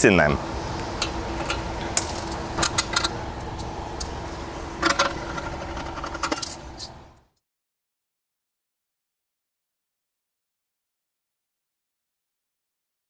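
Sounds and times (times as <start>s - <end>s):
steady low hum: 0.0s - 7.4s.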